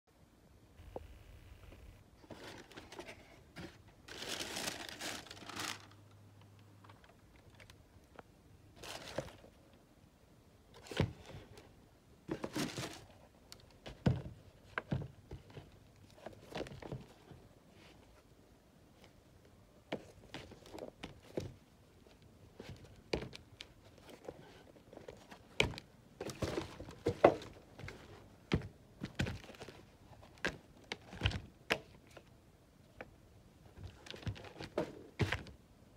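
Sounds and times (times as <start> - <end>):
cardboard box crinkling rustle: 4.0 - 6.0.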